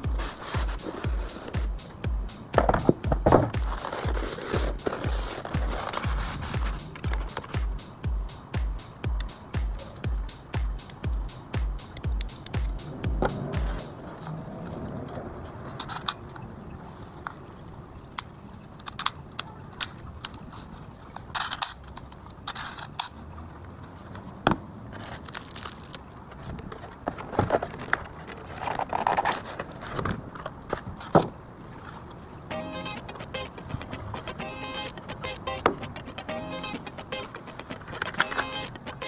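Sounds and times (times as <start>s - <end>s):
plastic toy rifle clicks and scrapes: 18.8s - 20.4s, 21.2s - 23.2s, 25.0s - 30.8s.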